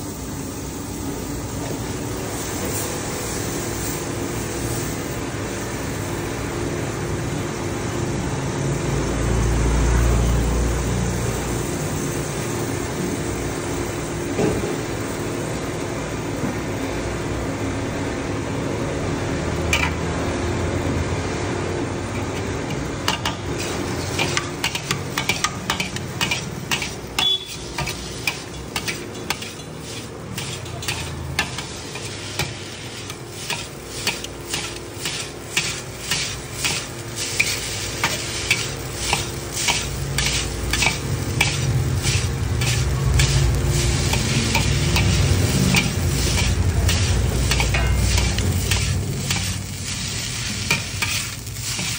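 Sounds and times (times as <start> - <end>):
noodles frying in a wok: 0.0 - 51.9
metal spatulas clanking on a wok: 19.7 - 20.0, 22.1 - 51.9.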